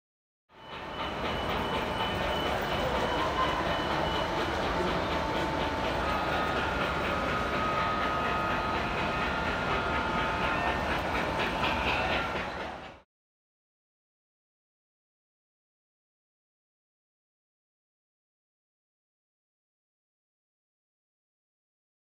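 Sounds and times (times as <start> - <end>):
model train rolling rumble: 0.6 - 13.0.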